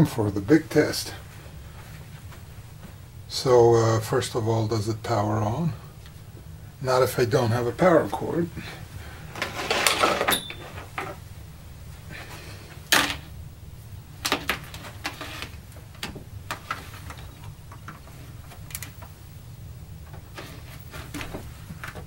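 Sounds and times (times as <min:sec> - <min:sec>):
hands handling cables and console: 0:14.2 - 0:19.2, 0:20.0 - 0:22.0.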